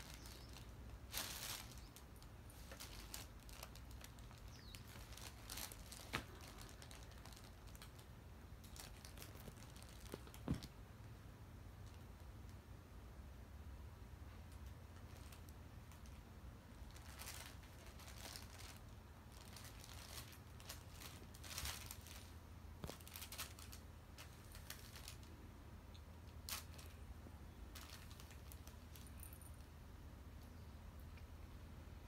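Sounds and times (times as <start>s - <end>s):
nylon tunnel rustling and crinkling: 0.0s - 10.8s, 14.5s - 25.4s, 26.2s - 29.5s.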